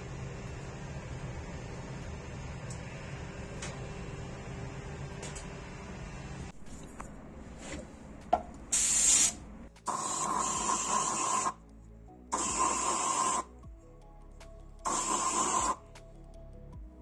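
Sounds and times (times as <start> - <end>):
spray gun hissing: 8.7 - 11.6.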